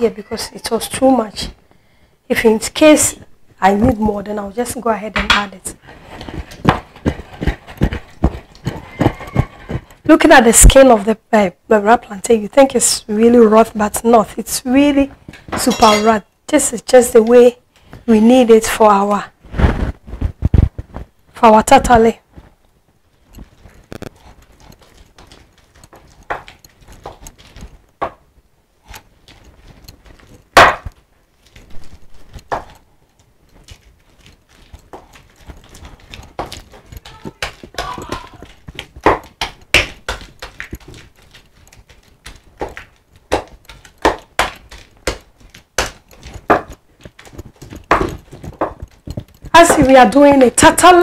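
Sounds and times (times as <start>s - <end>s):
wooden pestle knocking clay bowl: 30.6s - 30.9s, 36.1s - 41.0s, 42.6s - 50.2s.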